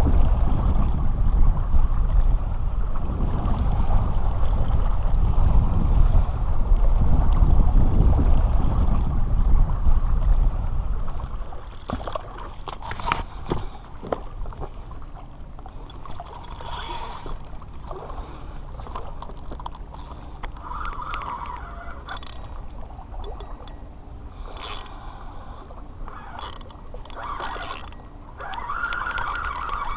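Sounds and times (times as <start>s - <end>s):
heavy wind on microphone: 0.0s - 29.9s
water lapping at shore: 0.0s - 29.9s
fishing gear clicks and knocks: 11.7s - 14.2s, 15.6s - 17.9s, 18.8s - 20.7s, 22.0s - 22.6s, 23.2s - 25.0s, 26.3s - 29.9s.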